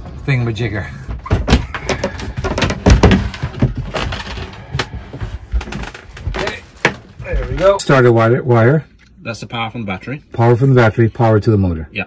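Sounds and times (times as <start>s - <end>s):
wooden cover knocking: 1.2s - 4.2s.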